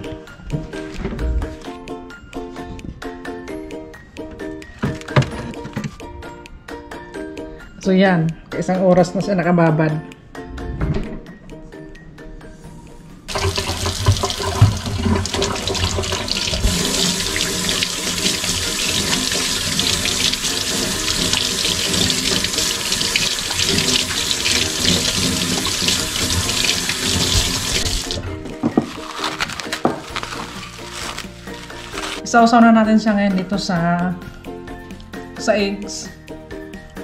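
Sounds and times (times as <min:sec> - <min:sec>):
faucet running into steel sink: 0:13.3 - 0:28.2
hands rubbing under water: 0:28.8 - 0:32.2.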